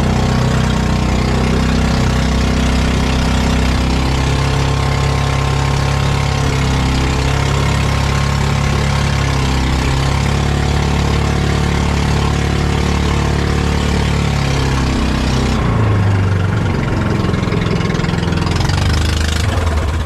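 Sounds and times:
boat engine running: 0:00.0 - 0:20.0.

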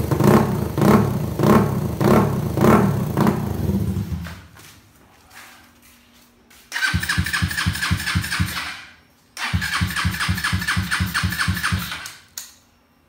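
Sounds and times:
motorcycle engine firing: 0:00.0 - 0:04.5, 0:06.8 - 0:12.3.

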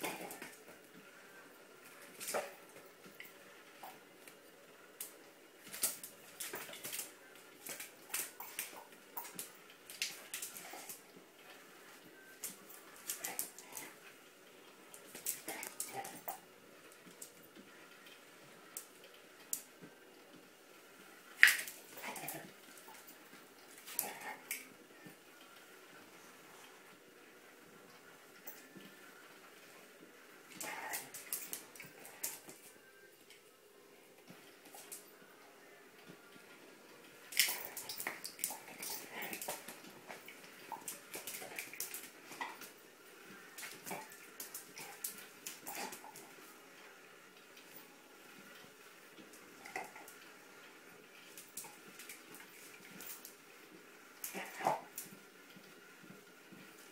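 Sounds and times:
dog claws scrabbling on tiled floor: 0:05.0 - 0:11.0, 0:12.4 - 0:14.0, 0:15.0 - 0:16.4, 0:21.4 - 0:23.1, 0:30.5 - 0:32.6, 0:37.3 - 0:42.7, 0:43.6 - 0:46.3
dog claws clicking on tile: 0:37.3 - 0:42.7.

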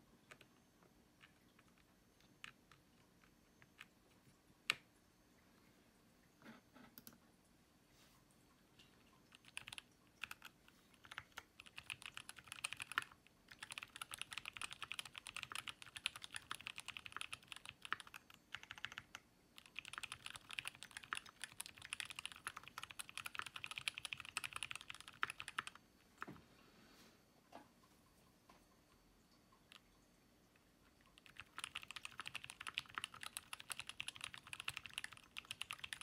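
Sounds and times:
typing on mechanical keyboard: 0:01.2 - 0:02.9, 0:09.3 - 0:25.8, 0:31.0 - 0:36.0.

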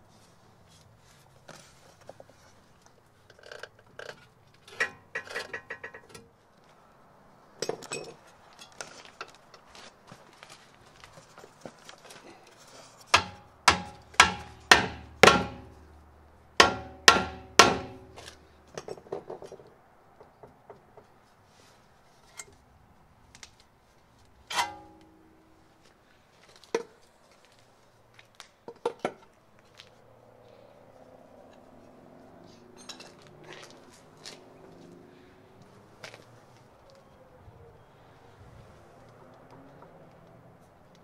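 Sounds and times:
hammer striking steel: 0:13.1 - 0:15.9, 0:16.6 - 0:18.4.

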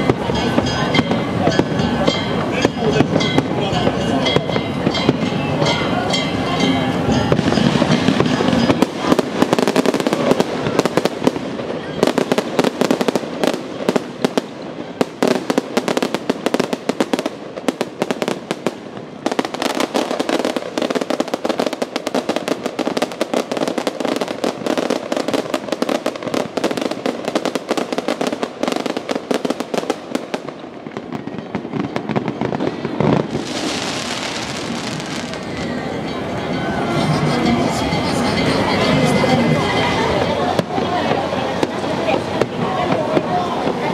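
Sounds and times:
fireworks crackling: 0:00.0 - 0:43.9
fireworks spray hissing: 0:07.1 - 0:35.8.

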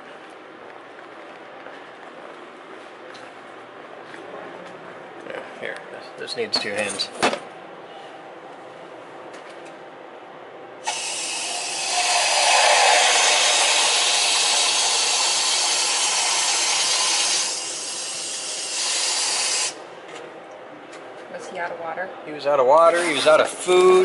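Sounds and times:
water hissing from valve: 0:10.8 - 0:19.8.

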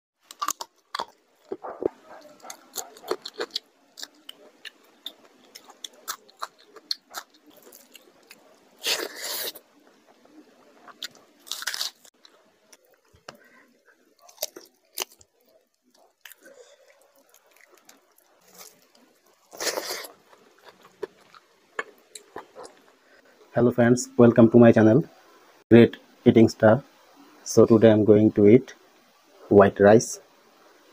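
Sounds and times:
close-miked eating and chewing: 0:00.2 - 0:23.2.

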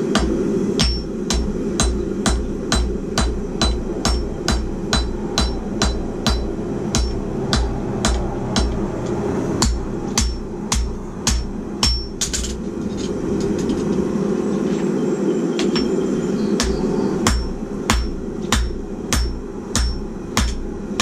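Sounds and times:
hammer striking steel on anvil: 0:00.0 - 0:13.1, 0:15.6 - 0:16.0, 0:16.6 - 0:21.0
low hum: 0:00.0 - 0:21.0
anvil ringing: 0:00.8 - 0:08.8, 0:09.6 - 0:12.6, 0:16.6 - 0:20.6.

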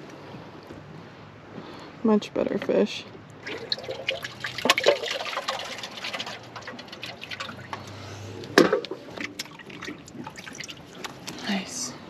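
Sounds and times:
water trickling and splashing: 0:03.2 - 0:11.9
sharp water splash: 0:03.4 - 0:07.8.

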